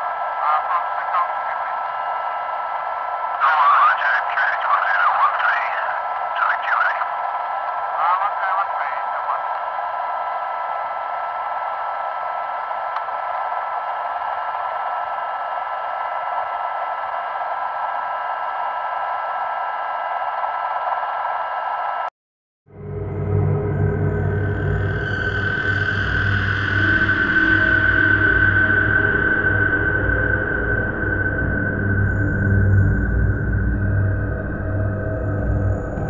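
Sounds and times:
garbled radio voices: 0.4 - 2.0, 3.4 - 9.6
radio hiss: 0.4 - 2.0, 3.4 - 7.1, 7.9 - 9.6
whining tones: 22.7 - 36.0.

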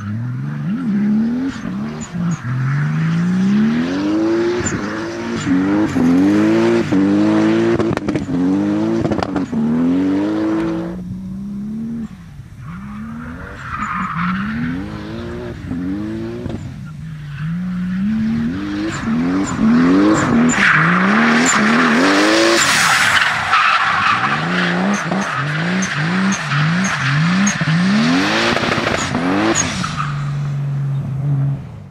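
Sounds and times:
car engine revving hard: 2.8 - 12.1, 17.4 - 22.9, 23.6 - 30.0.

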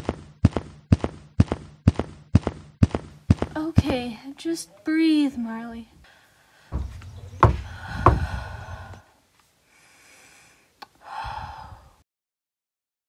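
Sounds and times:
knocks on a door: 6.7 - 8.4.

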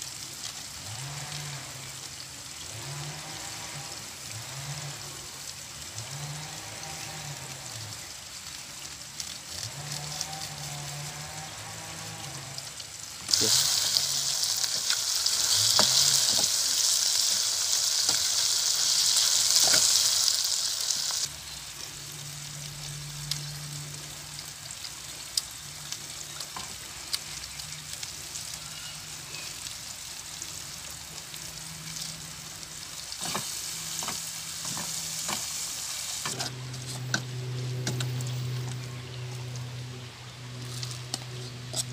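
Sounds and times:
food sizzling in oil: 0.0 - 41.9.

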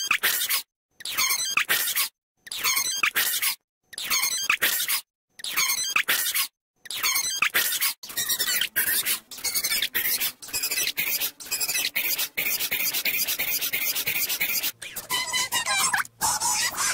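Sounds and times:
pitched-up cartoon audio bursts: 2.5 - 16.9.

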